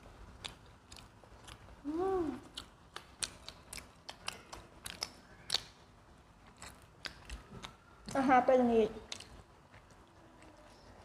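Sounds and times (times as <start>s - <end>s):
people chewing crunchy food: 0.0s - 11.0s
person humming mm: 1.8s - 2.5s.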